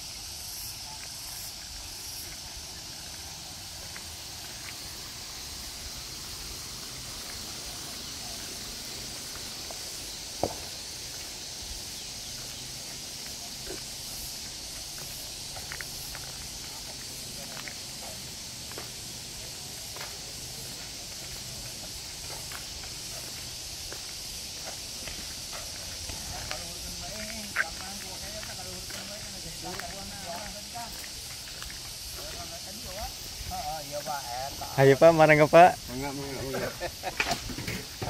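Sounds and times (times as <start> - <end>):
high-pitched outdoor hiss: 0.0 - 38.0
light footstep taps: 10.4 - 11.3.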